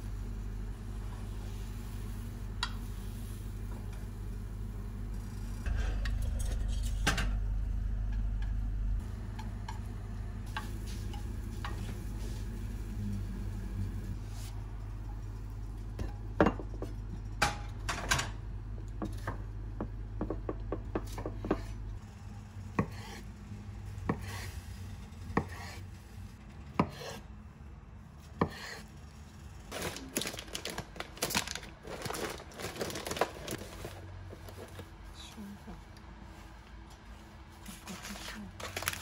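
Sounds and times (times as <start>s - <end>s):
low hum: 0.0s - 16.4s
plastic packets rustling: 29.7s - 35.0s, 37.9s - 39.0s.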